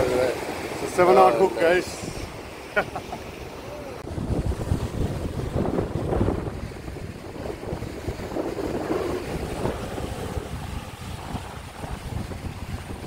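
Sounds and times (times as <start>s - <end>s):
rough surf: 0.0s - 13.0s
wind buffeting microphone: 3.4s - 13.0s.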